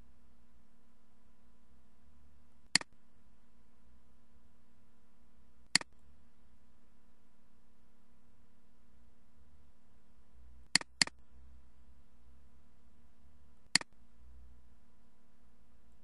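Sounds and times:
steady low hum: 0:00.0 - 0:16.0
computer mouse button clicks: 0:10.8 - 0:11.1.

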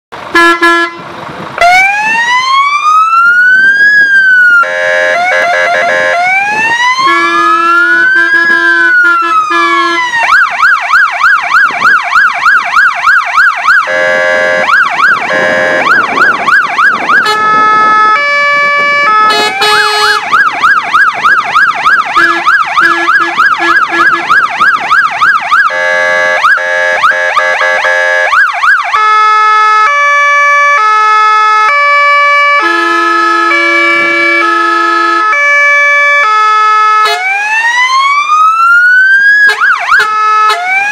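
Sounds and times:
fire engine siren: 0:00.1 - 0:40.9.

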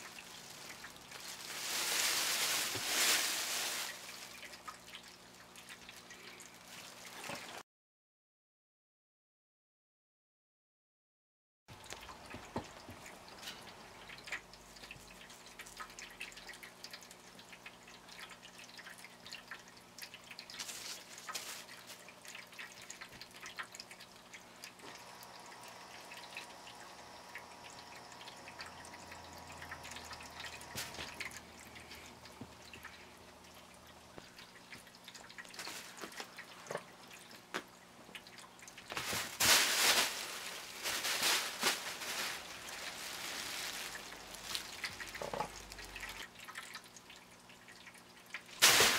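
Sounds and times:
crinkle tunnel rustling: 0:00.0 - 0:04.8, 0:20.4 - 0:22.8, 0:35.4 - 0:36.5, 0:38.8 - 0:46.2, 0:48.6 - 0:48.9.

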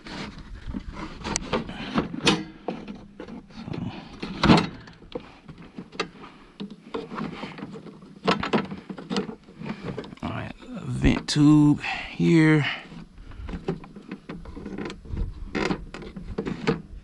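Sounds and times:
hard plastic knocks and rattles: 0:00.7 - 0:10.2.

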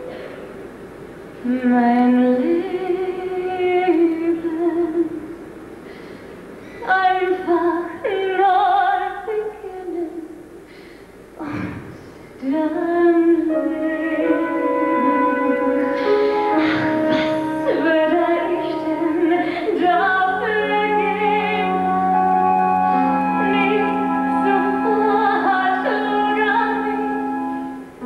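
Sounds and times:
woman singing: 0:01.4 - 0:05.3, 0:06.8 - 0:10.4, 0:12.4 - 0:27.8.

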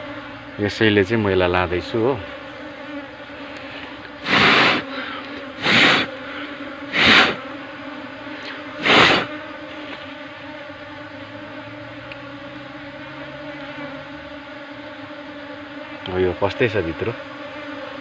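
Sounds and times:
honeybees buzzing: 0:00.0 - 0:18.0
hissing air whooshes: 0:03.7 - 0:04.9, 0:05.6 - 0:06.1, 0:06.9 - 0:07.4, 0:08.8 - 0:09.3.

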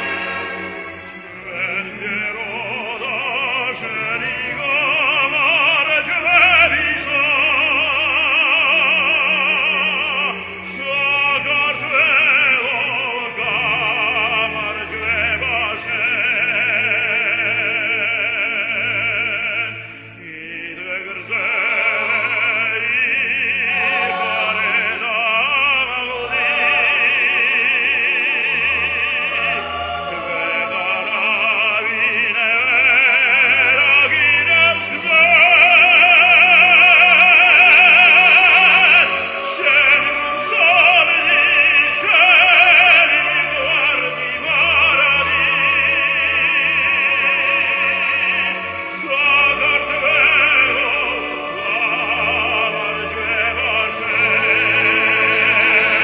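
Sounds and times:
classical instrumental accompaniment: 0:00.0 - 0:56.0
man singing operatically: 0:00.7 - 0:56.0.

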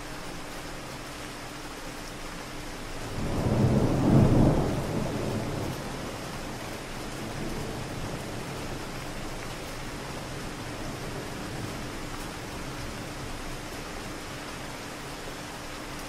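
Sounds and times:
steady rain: 0:00.0 - 0:16.0
distant thunder rumbling: 0:03.1 - 0:09.4.

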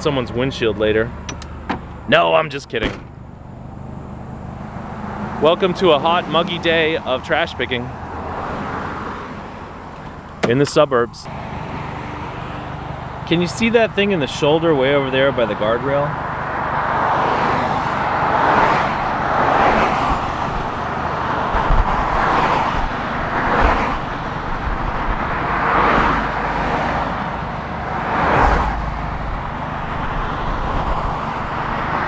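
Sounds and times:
cars passing on a road: 0:00.0 - 0:32.0
idling car with loud muffler: 0:24.0 - 0:32.0.

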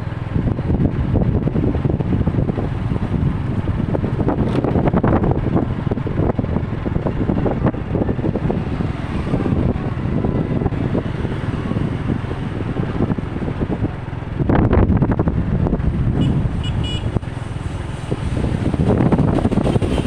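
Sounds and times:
road traffic rumbling: 0:00.0 - 0:20.0
quick horn toots: 0:16.2 - 0:17.2.

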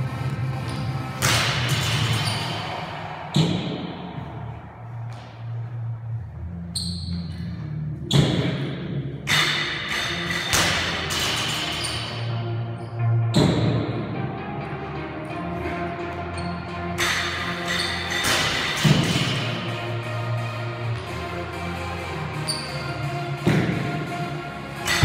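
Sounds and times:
background music with bass line: 0:00.0 - 0:25.0.

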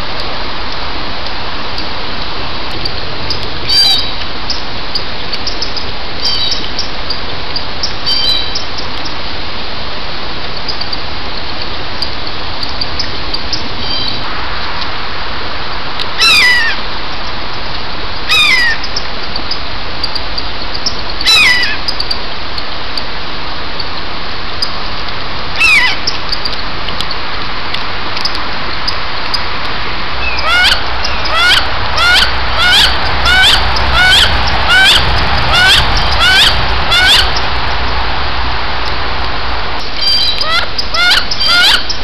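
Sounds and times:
steady hiss: 0:00.0 - 0:42.0
duck crying: 0:30.4 - 0:37.4.

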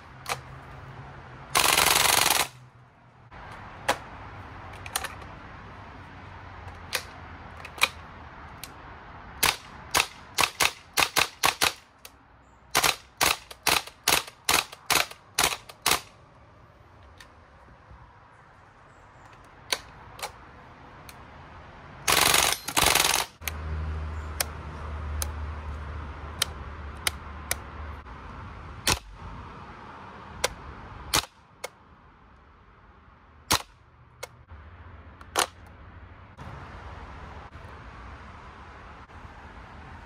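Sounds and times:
airsoft gun full-auto bursts: 0:01.5 - 0:02.6, 0:09.4 - 0:11.8, 0:12.7 - 0:16.1, 0:22.0 - 0:23.4
gun mechanism clicks: 0:04.7 - 0:05.3, 0:09.4 - 0:16.2, 0:19.3 - 0:20.4, 0:35.2 - 0:35.7.

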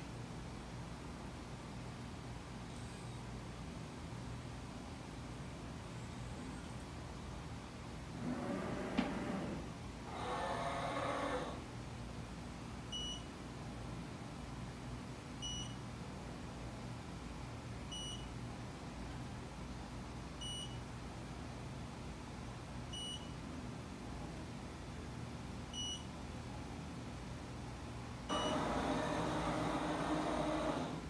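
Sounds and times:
low machine hum: 0:00.0 - 0:15.8, 0:27.6 - 0:31.0
short beeps: 0:13.0 - 0:13.3, 0:15.4 - 0:15.8, 0:17.9 - 0:18.3, 0:20.4 - 0:20.8, 0:23.0 - 0:23.3, 0:25.8 - 0:26.1, 0:28.3 - 0:28.6.

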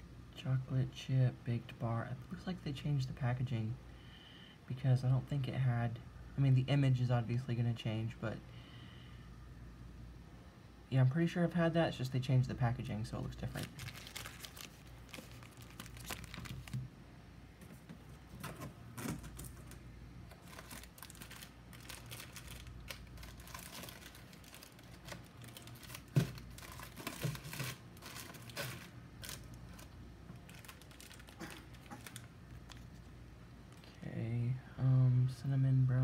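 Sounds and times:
plastic wrappers crinkling: 0:13.3 - 0:16.9, 0:18.5 - 0:34.0.

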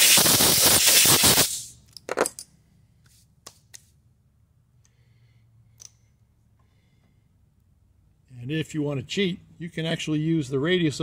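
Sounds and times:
compressed-air blast: 0:00.0 - 0:01.8.

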